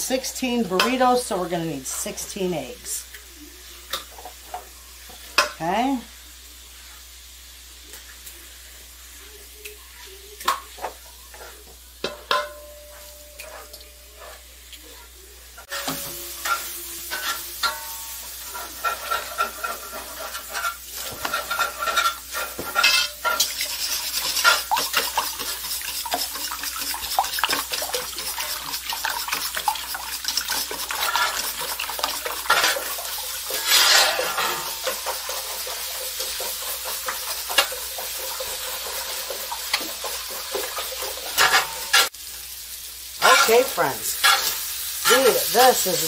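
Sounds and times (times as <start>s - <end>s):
sausage sizzling in a skillet: 0.0s - 46.0s
whisk clinking in metal bowl: 18.8s - 42.0s.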